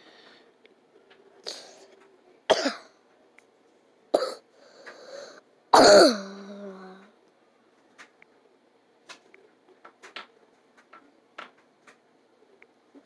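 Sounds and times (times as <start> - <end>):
person coughing: 2.5 - 2.9, 4.2 - 4.4, 5.8 - 6.9
low voiced groan: 6.0 - 7.1.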